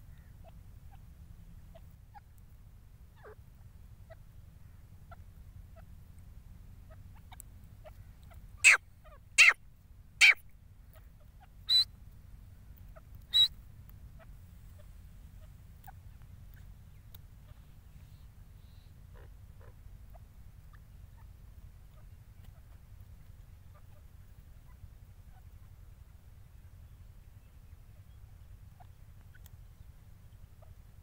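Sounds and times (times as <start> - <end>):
francolins sharp calls: 6.8 - 9.6, 10.2 - 12.0, 12.8 - 25.8
faint soft chirps: 12.8 - 19.1.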